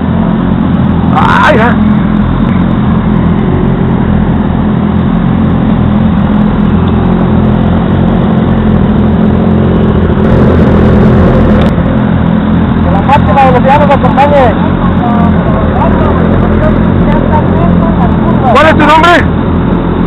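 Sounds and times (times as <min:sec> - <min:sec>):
motorcycle engines droning: 0:00.0 - 0:20.0.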